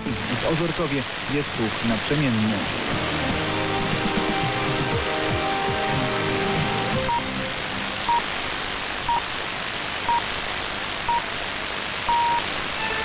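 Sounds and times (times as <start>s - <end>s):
radio music: 0.0s - 9.3s
radio hiss: 0.0s - 13.0s
short time signal beeps: 12.1s - 12.4s.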